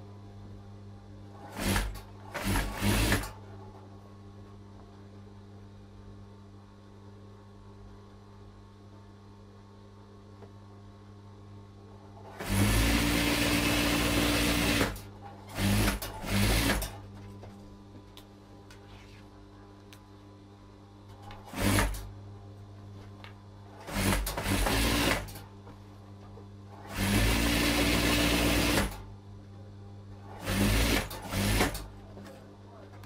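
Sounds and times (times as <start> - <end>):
sewing machine stitching: 1.4 - 3.4, 12.2 - 17.0, 21.4 - 22.1, 23.7 - 25.4, 26.7 - 29.0, 30.2 - 32.0
sewing machine motor humming: 1.4 - 3.5, 12.2 - 17.1, 21.4 - 22.1, 23.7 - 25.4, 26.7 - 29.0, 30.2 - 32.0.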